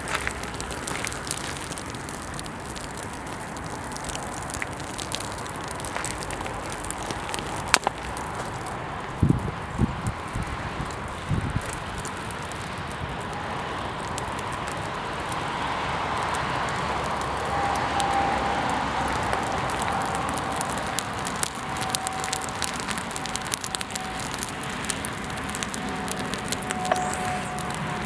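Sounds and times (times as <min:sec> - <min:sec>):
sharp pops from fire: 0:00.0 - 0:18.3, 0:19.1 - 0:28.0
flames crackling: 0:00.0 - 0:28.0
faint whistling tone: 0:26.7 - 0:28.0.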